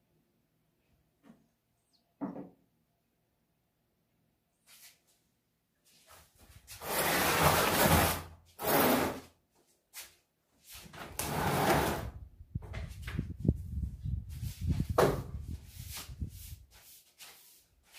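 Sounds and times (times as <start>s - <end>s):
broom scraping cement floor: 5.9s - 9.4s, 10.0s - 12.2s, 13.8s - 17.9s.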